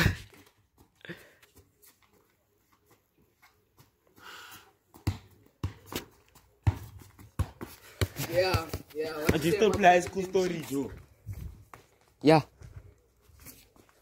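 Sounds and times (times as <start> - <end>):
ball kicked on stone paving: 4.9 - 12.0.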